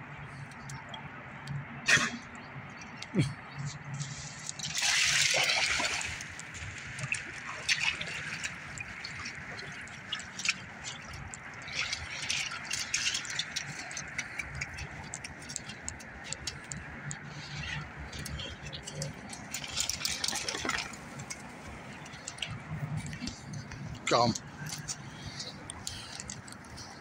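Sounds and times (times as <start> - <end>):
paw steps in water and mud: 3.7 - 27.0
water flowing: 3.7 - 27.0
dog splashing through water: 4.6 - 17.5.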